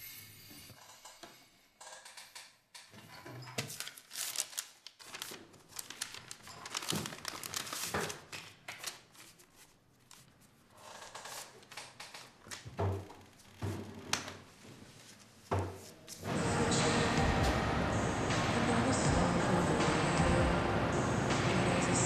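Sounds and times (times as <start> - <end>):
paper rustling and crinkling: 3.6 - 12.6.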